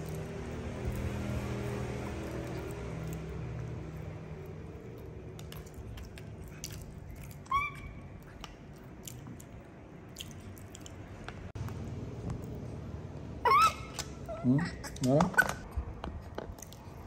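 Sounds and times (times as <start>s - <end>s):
monkey chewing: 0.0s - 12.6s.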